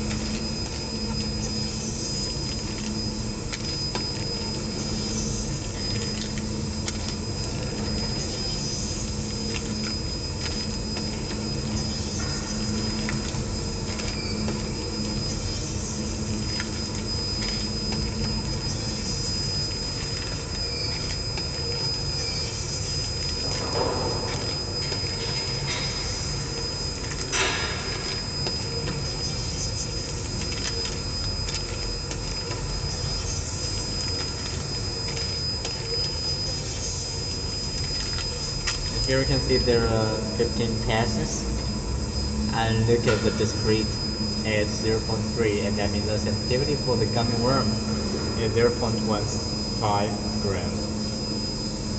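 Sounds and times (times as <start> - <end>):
conveyor machine with high whine: 0.0 - 51.9
low hum: 0.0 - 51.9
brief loud machine noises: 9.4 - 29.7, 32.5 - 51.9.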